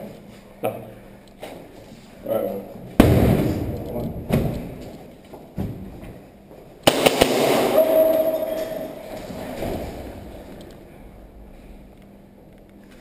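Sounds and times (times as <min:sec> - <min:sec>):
airsoft pistol shots echoing: 0:06.8 - 0:08.0
steady held tone: 0:07.7 - 0:09.3.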